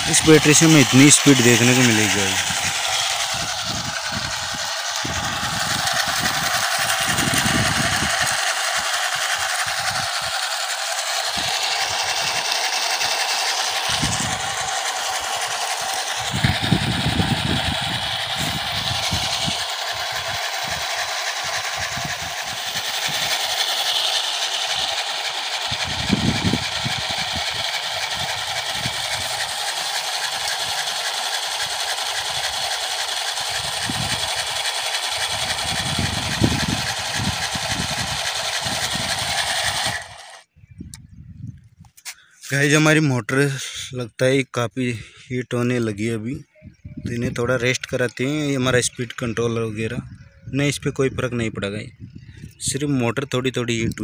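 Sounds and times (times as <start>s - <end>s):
electric motors whining: 0.0s - 40.5s.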